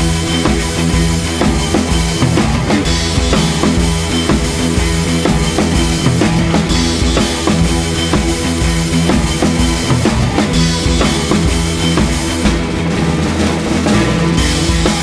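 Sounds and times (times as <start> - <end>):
background music with drum beat: 0.0 - 15.0.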